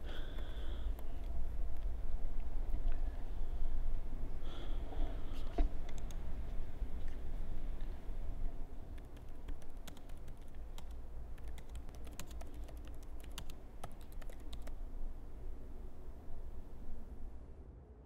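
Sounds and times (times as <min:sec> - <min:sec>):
low steady hum: 0:00.0 - 0:18.0
laptop keyboard typing: 0:05.9 - 0:06.2, 0:08.9 - 0:14.8.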